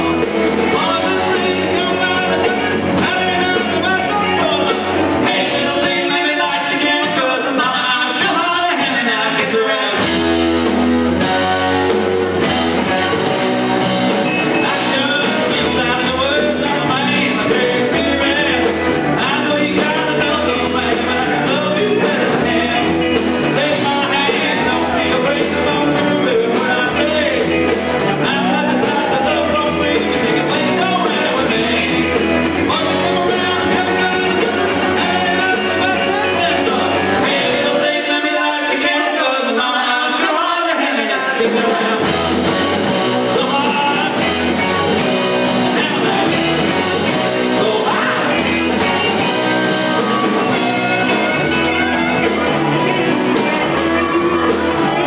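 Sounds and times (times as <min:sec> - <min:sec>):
man singing: 0:00.0 - 0:10.2, 0:14.2 - 0:55.0
electric bass: 0:00.0 - 0:38.3, 0:41.9 - 0:55.0
drum kit: 0:00.0 - 0:55.0
electric guitars: 0:00.0 - 0:55.0.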